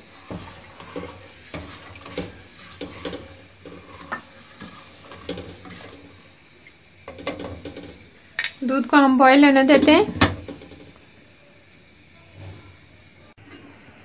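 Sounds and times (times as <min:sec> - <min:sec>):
ladle scraping metal pot: 0:00.0 - 0:06.4, 0:07.0 - 0:08.6, 0:09.7 - 0:11.0.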